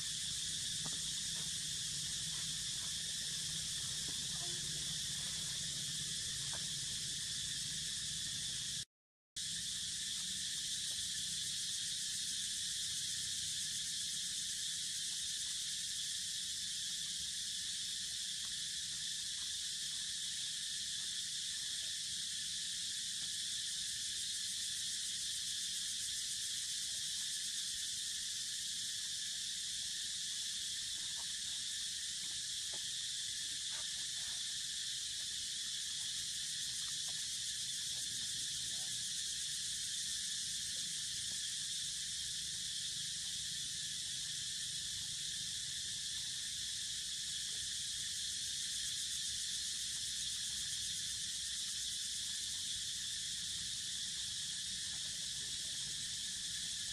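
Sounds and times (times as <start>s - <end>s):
insect chorus drone: 0.0s - 56.9s.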